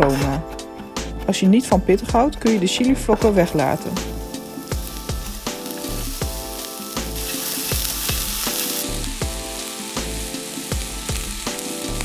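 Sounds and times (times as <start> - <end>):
vegetables sizzling in oil: 3.4 - 12.0.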